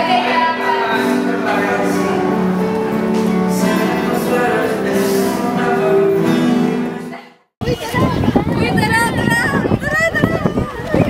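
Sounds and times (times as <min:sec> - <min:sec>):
song with long held notes: 0:00.0 - 0:07.3.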